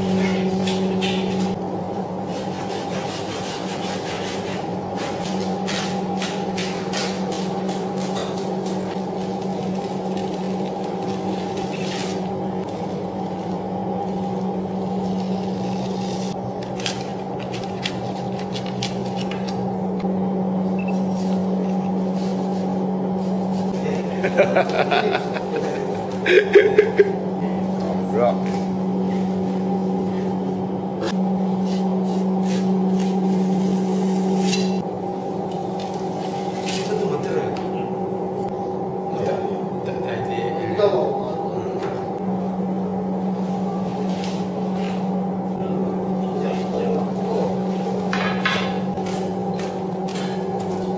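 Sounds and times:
steady machine hum: 0.0s - 50.9s
knife scraping through fish: 2.3s - 5.2s.

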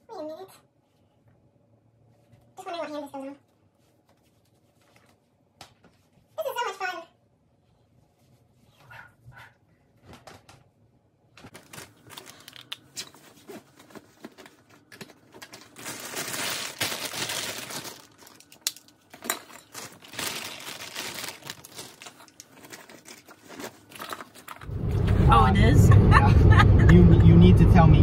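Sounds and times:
plastic bags crinkling: 11.4s - 24.7s.

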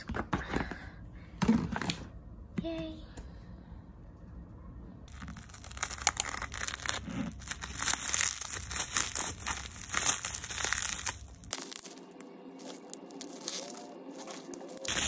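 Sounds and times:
plastic packaging crinkling: 5.1s - 15.0s.

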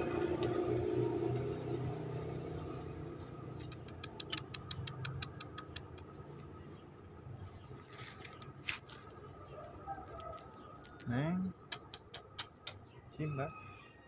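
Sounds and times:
faint low engine hum: 0.0s - 14.0s
kitten eating with wet clicks: 3.6s - 6.2s.

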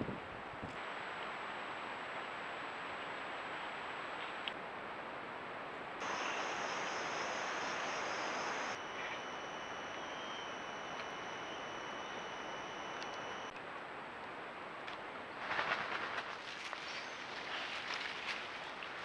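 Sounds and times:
outdoor ambience hiss: 0.0s - 19.0s
faint high electronic whine: 0.8s - 4.2s, 6.0s - 13.6s.

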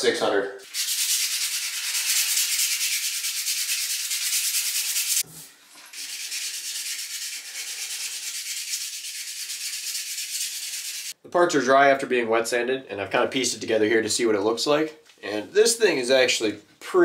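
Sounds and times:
wet sandpaper rasping hiss: 0.6s - 11.2s.

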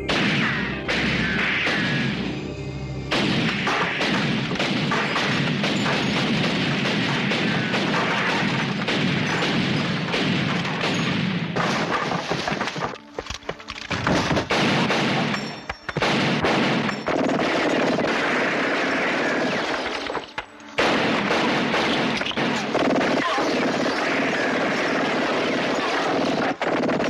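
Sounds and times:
rapid gunfire: 0.0s - 2.2s, 3.1s - 13.0s, 14.0s - 20.2s, 20.8s - 27.0s
crashes and booms: 0.0s - 2.3s, 3.1s - 12.8s.

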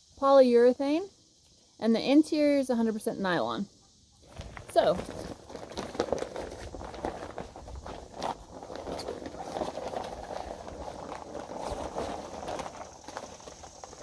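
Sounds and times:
rain jacket rustling: 4.3s - 14.0s.

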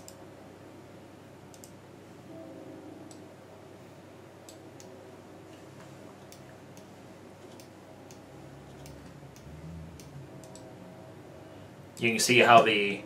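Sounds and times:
computer mouse clicks: 0.0s - 0.2s, 1.5s - 1.8s, 6.2s - 10.7s
low steady hum: 0.0s - 13.0s.

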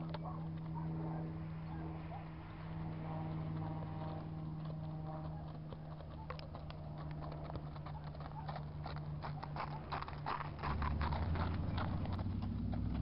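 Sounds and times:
horse hoofbeats on dirt: 0.0s - 13.0s
low hum: 0.0s - 13.0s.

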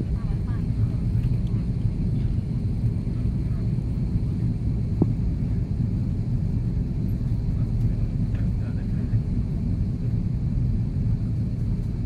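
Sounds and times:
airplane cabin engine rumble: 0.0s - 12.0s.

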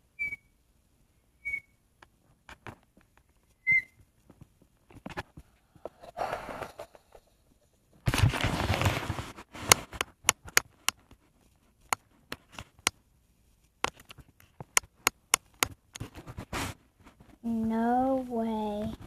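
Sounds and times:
microphone handling rush: 8.1s - 10.0s
sharp clicks and taps: 9.6s - 11.2s, 11.8s - 13.0s, 13.8s - 16.2s.

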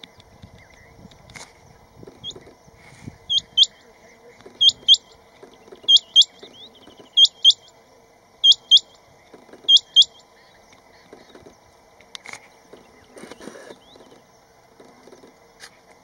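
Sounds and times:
quail whistled call: 3.3s - 3.8s, 4.6s - 5.2s, 5.8s - 7.7s, 8.4s - 9.0s, 9.6s - 10.2s.

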